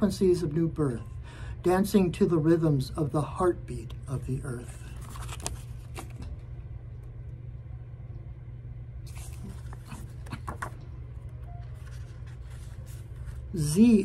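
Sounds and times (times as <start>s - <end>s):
low room hum: 0.0s - 14.0s
paper pages rustling: 4.5s - 6.4s, 9.0s - 13.8s.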